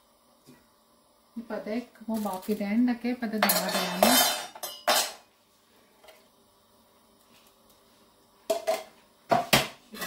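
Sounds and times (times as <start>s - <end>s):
metal tongs rattling against pot: 3.4s - 5.2s.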